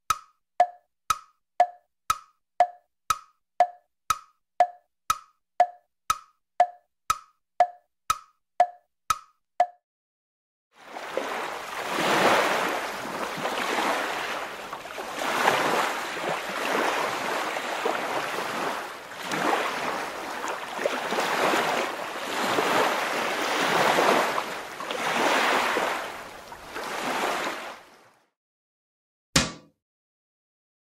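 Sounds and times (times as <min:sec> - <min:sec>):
ocean waves washing in: 0:10.8 - 0:28.2.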